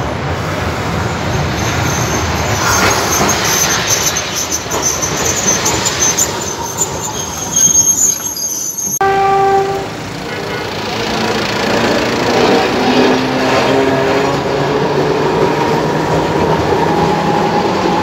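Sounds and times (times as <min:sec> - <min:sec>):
tram wheels rumbling on rails: 0:00.0 - 0:18.0
high-pitched wheel squeal: 0:01.2 - 0:09.9
horn-like note: 0:09.0 - 0:10.7.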